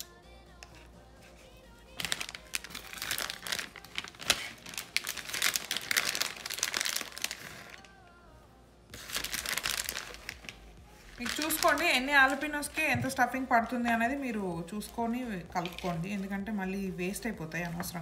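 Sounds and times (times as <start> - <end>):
crinkling food handling: 2.0 - 8.0, 9.0 - 12.7, 14.8 - 16.6.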